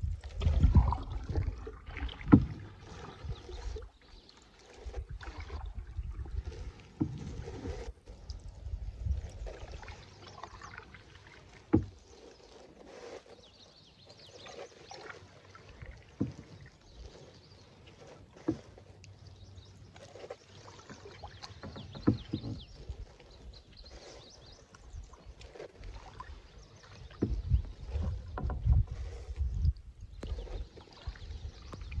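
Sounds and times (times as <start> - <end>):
wind rumble on microphone: 0.0 - 4.0, 4.8 - 10.0, 26.2 - 32.0
paddle swishing in water: 0.0 - 32.0
paddle knocking canoe side: 0.4 - 3.5, 6.8 - 7.9, 9.6 - 31.9.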